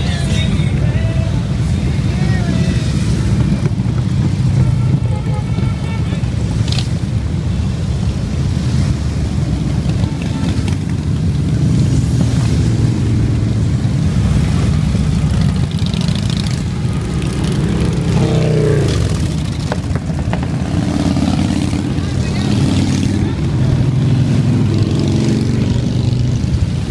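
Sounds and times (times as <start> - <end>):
motorcycles rumbling past: 8.7 - 26.9.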